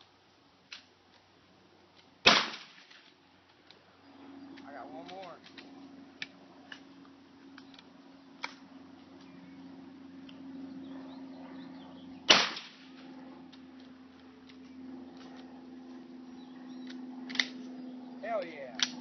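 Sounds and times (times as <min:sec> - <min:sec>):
shotgun blast: 0:02.2 - 0:02.9, 0:12.3 - 0:13.0.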